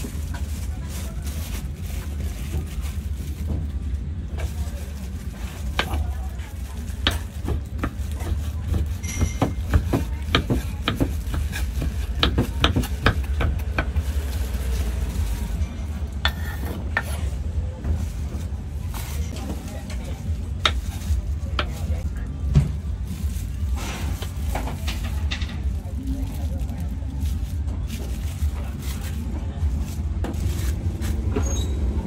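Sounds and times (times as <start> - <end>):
knife chopping on wooden board: 7.0 - 14.0.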